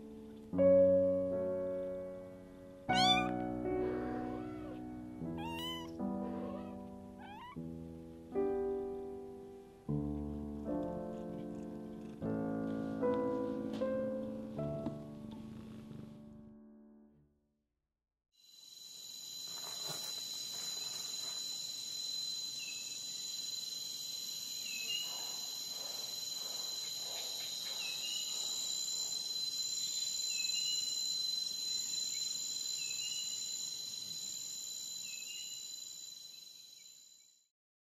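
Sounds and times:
high-pitched insect chorus: 2.9 - 4.8, 5.4 - 7.4, 18.4 - 37.4.

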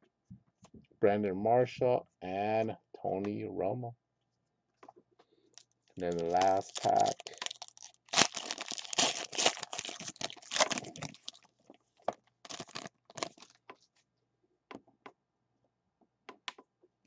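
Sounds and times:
foil wrapper tearing and crinkling: 6.0 - 11.5, 12.4 - 13.6.

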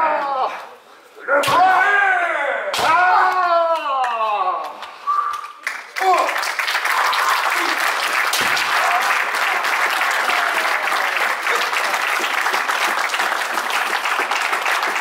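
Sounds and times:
crowd applauding: 5.6 - 15.0.

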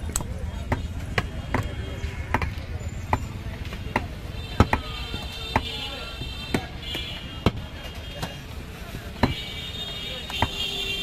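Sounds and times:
cleaver chopping on wooden block: 0.1 - 8.4.

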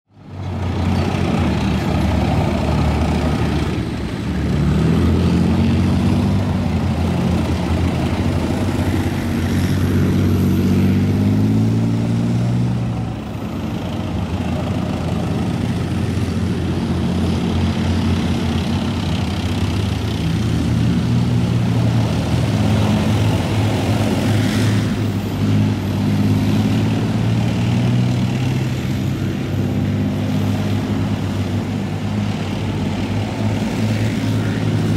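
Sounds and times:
tank engines droning: 0.1 - 34.9.

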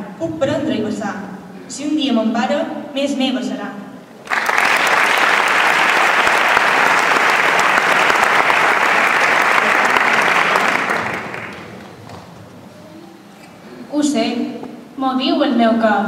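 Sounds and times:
audience applauding: 4.2 - 12.5.

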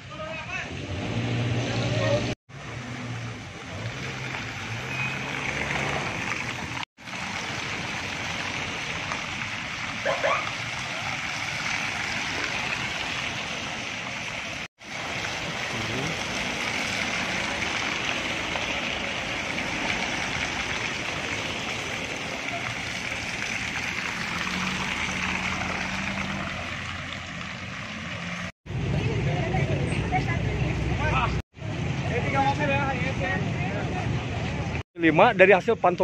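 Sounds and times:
car tyres hissing on wet road: 1.9 - 28.5.

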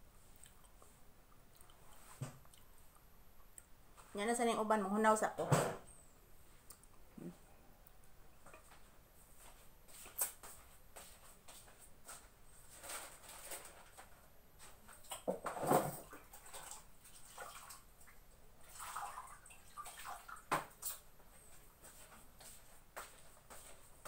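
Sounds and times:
hands washing with water splashes: 16.0 - 21.1.

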